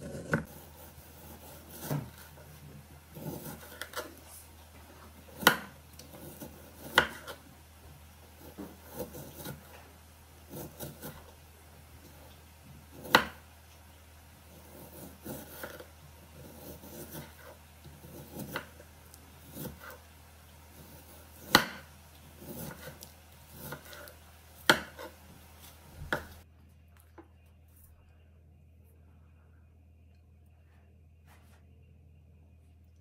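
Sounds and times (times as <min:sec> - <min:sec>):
knife slicing and scraping: 0:00.0 - 0:04.5, 0:05.2 - 0:07.4, 0:08.3 - 0:11.4, 0:12.9 - 0:13.4, 0:14.5 - 0:20.1, 0:20.7 - 0:26.4.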